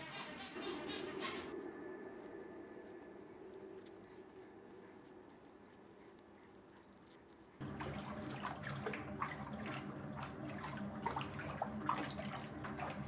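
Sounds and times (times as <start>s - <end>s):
steady low hum: 0.6s - 13.0s
water churning and splashing: 7.6s - 13.0s.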